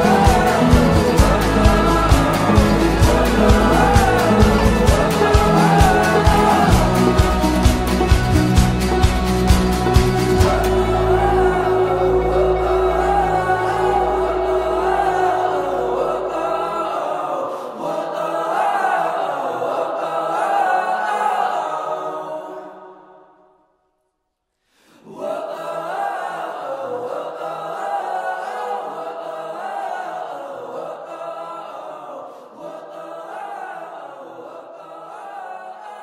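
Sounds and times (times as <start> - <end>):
choir singing: 0.0 - 23.6, 25.0 - 36.0.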